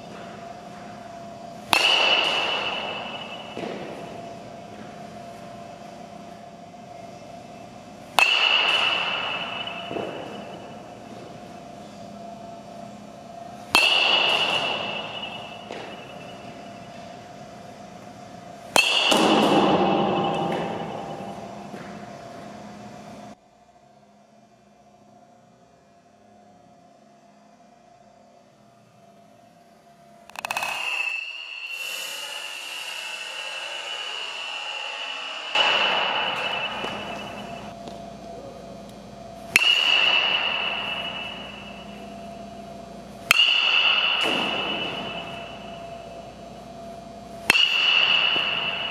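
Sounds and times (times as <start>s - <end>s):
metal bat hitting ball: 0.1s - 5.3s, 8.1s - 11.6s, 13.6s - 17.2s, 18.7s - 22.1s, 30.3s - 32.5s, 33.9s - 38.0s, 39.5s - 48.9s.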